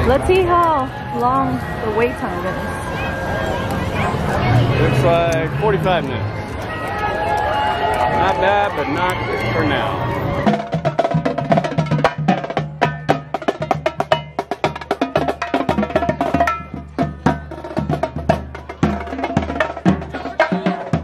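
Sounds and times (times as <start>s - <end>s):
bass drums: 10.3s - 21.0s
marching snare drums: 10.3s - 21.0s.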